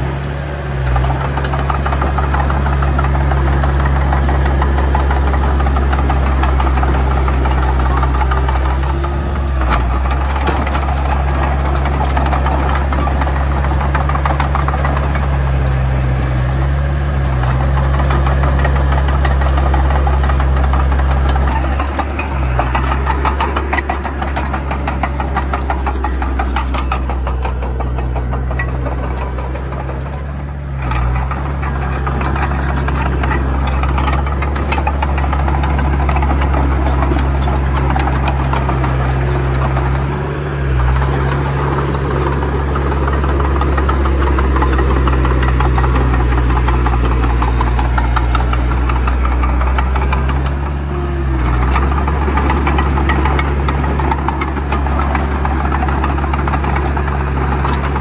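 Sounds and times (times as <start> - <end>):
bulldozer diesel engine clattering: 0.0 - 58.0.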